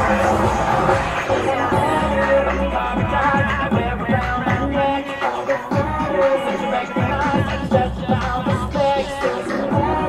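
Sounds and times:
person singing: 0:00.0 - 0:10.0
pop dance music over loudspeakers: 0:00.0 - 0:10.0
thumping bass beat: 0:00.0 - 0:10.0.

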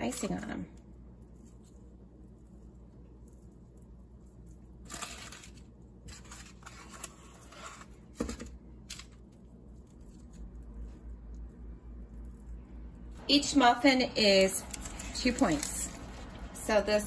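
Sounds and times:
paper liners rustling: 0:14.6 - 0:16.4.

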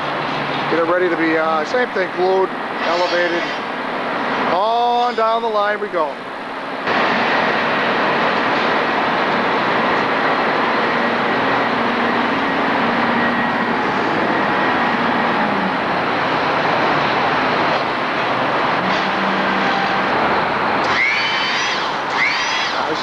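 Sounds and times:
loud machinery noise: 0:00.0 - 0:23.0.

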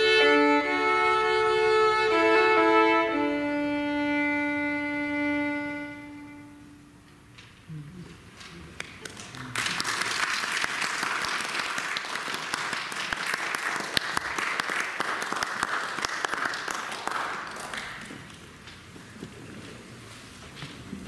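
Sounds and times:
audience applauding: 0:08.8 - 0:18.4.

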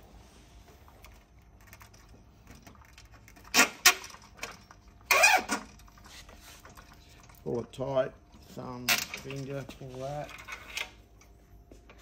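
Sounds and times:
cable ties zipping: 0:05.1 - 0:05.8.

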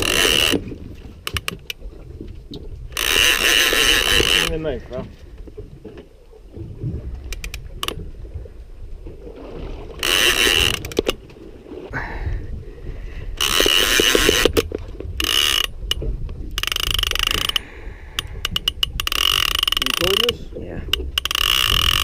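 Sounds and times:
fishing reel clicks: 0:00.0 - 0:00.6, 0:02.9 - 0:04.7, 0:07.3 - 0:08.0, 0:10.0 - 0:11.2, 0:13.4 - 0:22.0
fishing reel ratcheting: 0:00.0 - 0:00.6, 0:02.9 - 0:04.7, 0:07.3 - 0:08.0, 0:10.0 - 0:11.2, 0:13.4 - 0:22.0.

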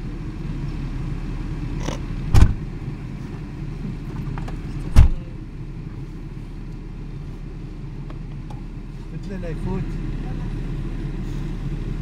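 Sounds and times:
car cabin low rumble: 0:00.0 - 0:12.0
sharp thump: 0:02.3 - 0:02.6, 0:04.9 - 0:05.2.

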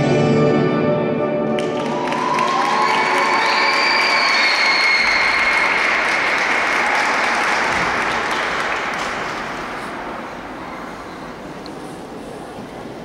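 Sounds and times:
small audience applauding: 0:01.5 - 0:10.6.

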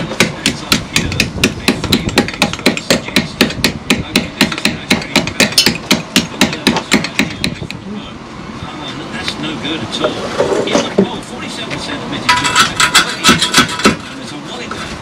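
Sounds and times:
rapid hammering: 0:00.0 - 0:07.8, 0:12.3 - 0:14.1.

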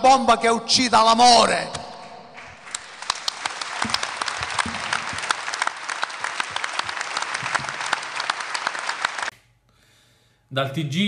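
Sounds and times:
crowd applauding: 0:02.3 - 0:09.3.

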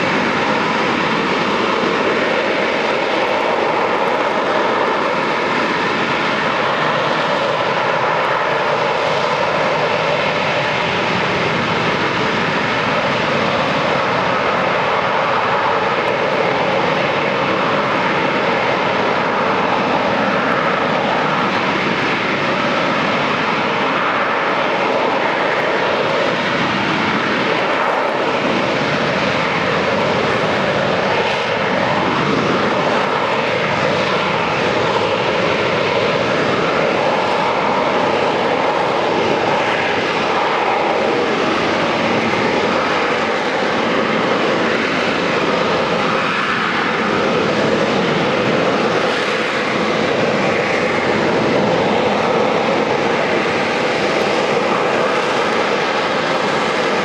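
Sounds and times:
jet hovering: 0:00.0 - 0:57.0.

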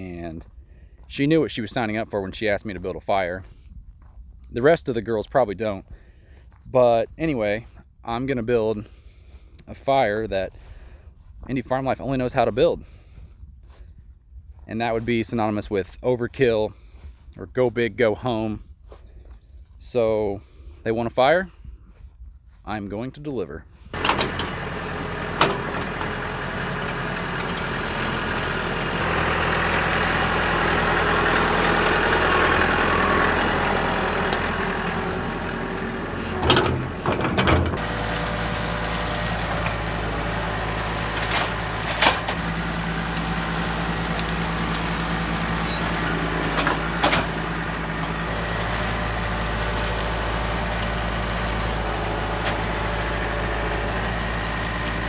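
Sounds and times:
tractor diesel engine running: 0:00.0 - 0:13.8, 0:23.7 - 0:55.0
branches knocking and cracking: 0:37.8 - 0:55.0.

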